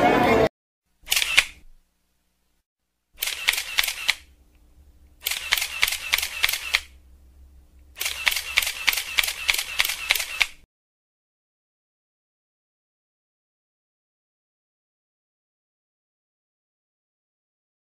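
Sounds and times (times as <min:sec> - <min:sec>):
camera shutter bursts: 0:01.1 - 0:01.6, 0:03.2 - 0:04.3, 0:05.2 - 0:07.0, 0:08.0 - 0:10.7.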